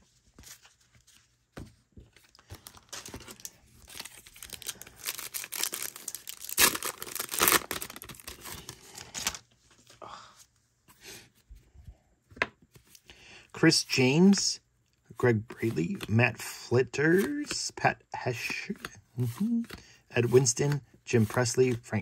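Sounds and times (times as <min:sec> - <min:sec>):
plastic wrapper crinkling and tearing: 0:02.6 - 0:09.4.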